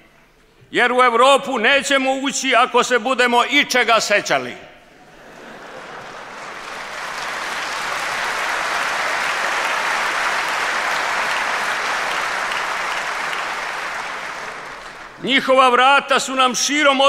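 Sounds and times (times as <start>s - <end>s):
audience applause: 5.0s - 15.2s.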